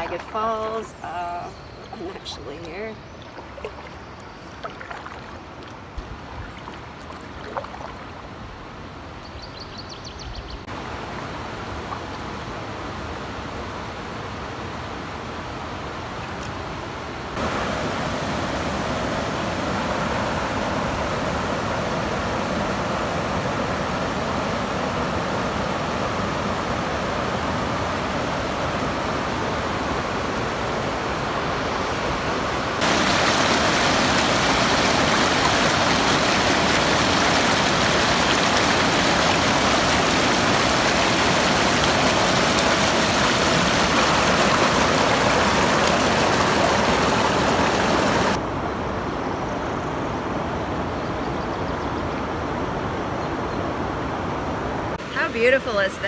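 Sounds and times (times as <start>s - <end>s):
water rushing over rocks: 0.0s - 8.3s, 17.3s - 48.4s.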